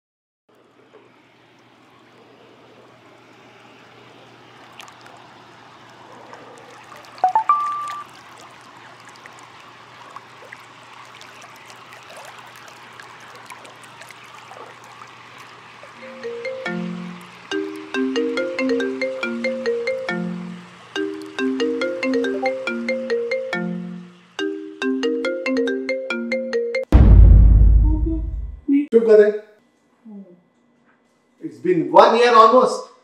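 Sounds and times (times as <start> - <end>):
hot tub jets bubbling water: 0.5 - 25.9
smartphone notification chime: 7.2 - 8.0, 21.0 - 23.8.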